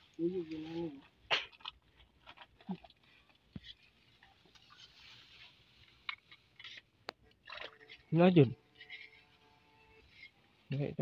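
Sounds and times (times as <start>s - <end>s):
grass brushing against person: 0.0s - 1.0s, 3.6s - 6.8s.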